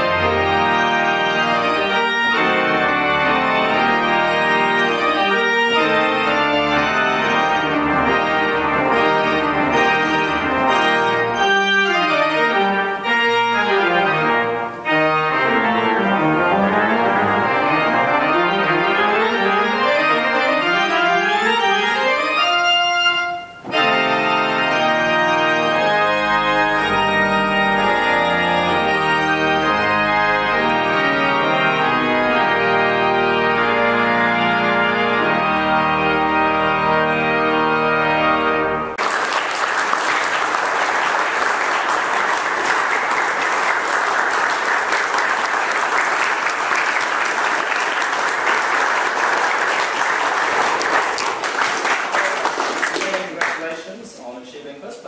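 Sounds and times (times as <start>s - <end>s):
pipe organ playing: 0.0s - 54.4s
audience applauding: 39.0s - 54.1s.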